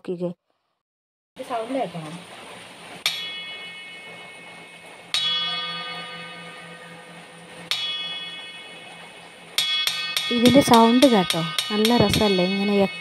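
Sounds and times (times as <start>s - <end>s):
copper bowl ringing when struck: 3.1s - 13.0s.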